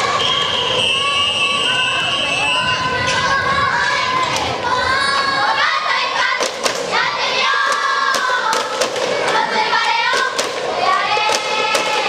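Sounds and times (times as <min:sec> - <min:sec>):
girls chanting a cheer: 0:02.6 - 0:12.0
sharp hand claps: 0:06.4 - 0:06.9, 0:07.7 - 0:09.4.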